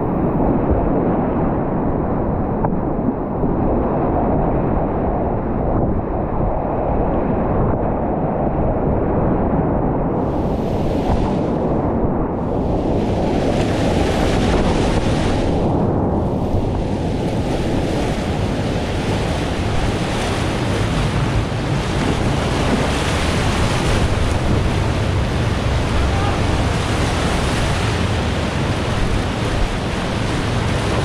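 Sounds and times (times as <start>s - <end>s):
whitewater rapids rushing: 16.9s - 31.0s.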